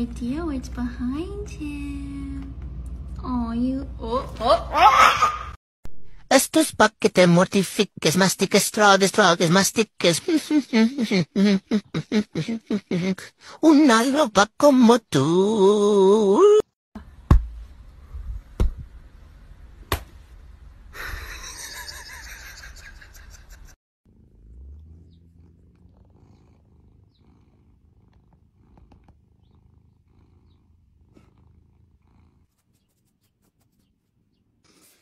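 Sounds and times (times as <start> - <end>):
cat purring: 24.1 - 34.8.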